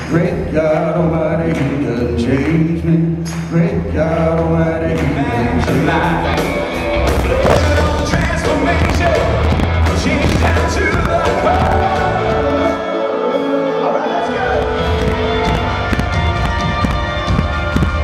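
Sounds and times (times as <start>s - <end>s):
live band with man singing: 0.0s - 18.0s
drums and bass: 3.8s - 12.7s, 14.5s - 18.0s.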